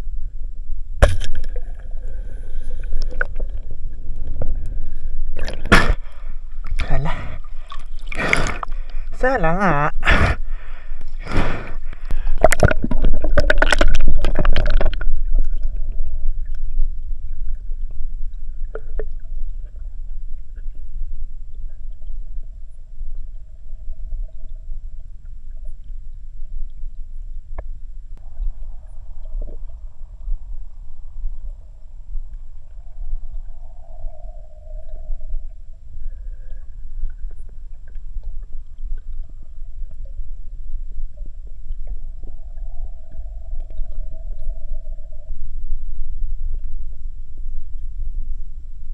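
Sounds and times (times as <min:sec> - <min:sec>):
muffled underwater rumble: 0:00.0 - 0:48.9
water splashing: 0:01.0 - 0:09.2, 0:11.2 - 0:17.8.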